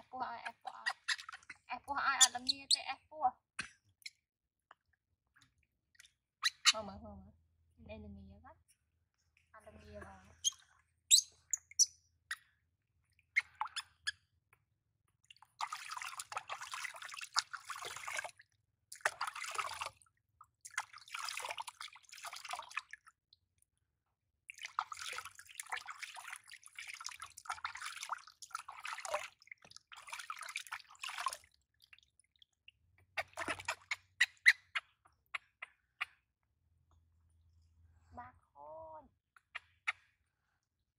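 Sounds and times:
water sloshing in a plastic basin: 0:15.1 - 0:23.2, 0:24.5 - 0:34.9
water dripping: 0:15.2 - 0:23.2, 0:24.5 - 0:34.0.

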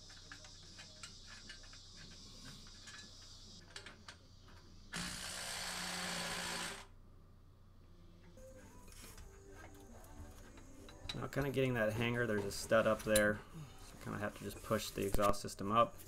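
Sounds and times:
power tool whirring: 0:04.9 - 0:06.9.

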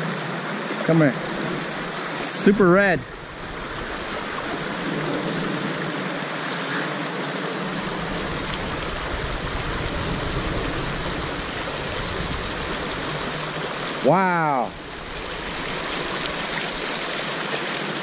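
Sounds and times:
river rushing over rocks: 0:00.0 - 0:18.0
low rumble: 0:07.6 - 0:13.9.

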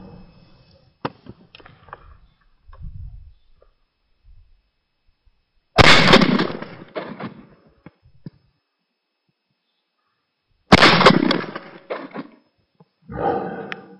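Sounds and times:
shotgun shots: 0:05.8 - 0:07.5, 0:10.7 - 0:12.3.

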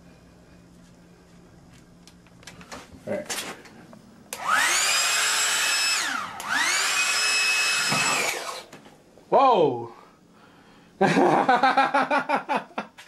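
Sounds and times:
hair dryer whine: 0:04.3 - 0:08.8.

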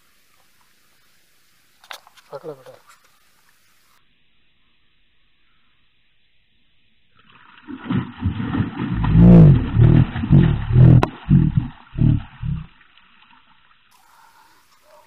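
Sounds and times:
deep roaring animal calls: 0:08.2 - 0:12.7.

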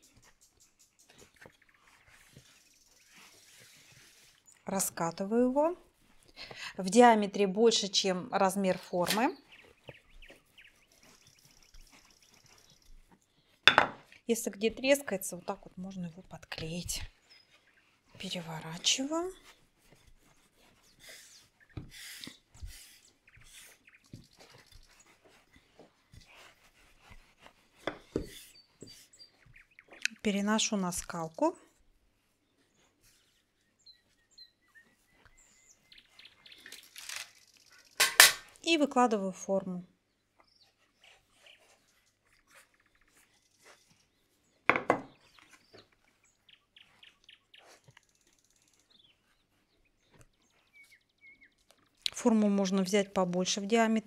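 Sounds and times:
rolling pin rubbing on dough: 0:24.8 - 0:29.6.

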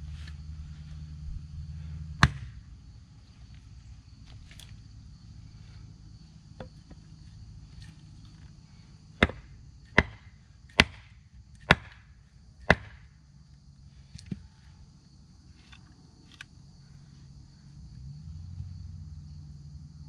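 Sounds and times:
hatchet chopping firewood: 0:02.1 - 0:02.7, 0:06.6 - 0:07.1, 0:09.1 - 0:13.2.

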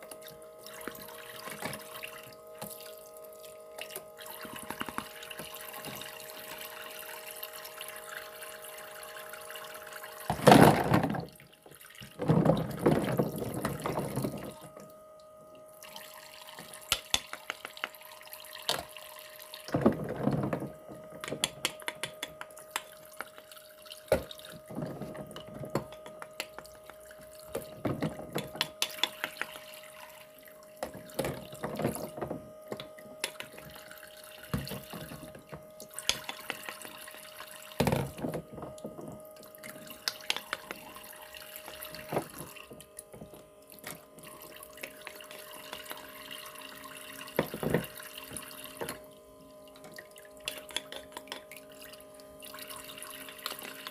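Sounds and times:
water running from faucet: 0:00.0 - 0:14.9, 0:15.7 - 0:53.9
faint steady hum: 0:00.0 - 0:53.9
small clicks and taps: 0:16.9 - 0:18.0, 0:21.2 - 0:23.5.

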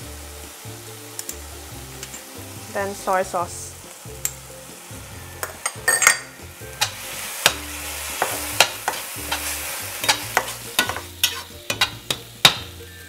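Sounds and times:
sauce sizzling in a frying pan: 0:00.0 - 0:13.0
metal spatula scraping a pan: 0:05.0 - 0:12.6.

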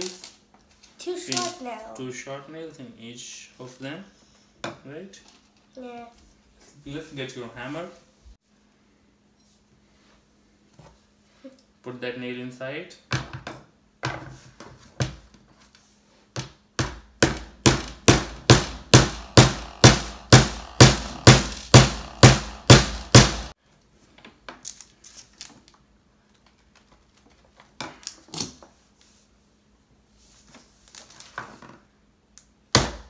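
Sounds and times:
hammer striking a nail into wood: 0:16.8 - 0:23.5.

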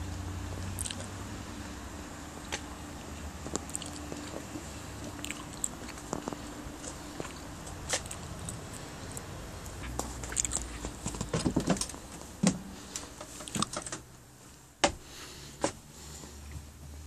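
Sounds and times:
person stepping inside: 0:03.4 - 0:17.0.

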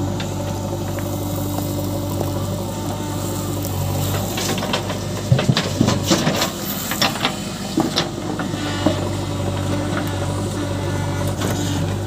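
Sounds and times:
diesel engine running: 0:00.0 - 0:12.0
backhoe bucket clanking: 0:04.1 - 0:10.0.

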